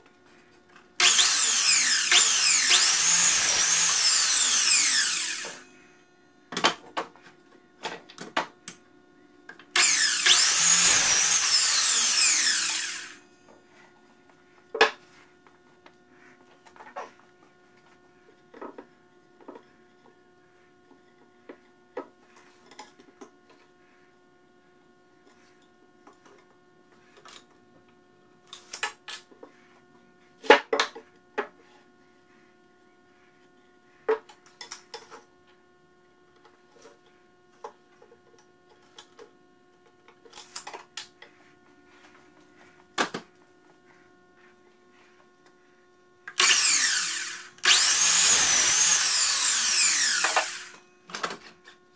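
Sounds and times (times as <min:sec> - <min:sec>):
miter saw motor whining: 0:01.0 - 0:05.7, 0:09.8 - 0:13.2, 0:46.4 - 0:50.8.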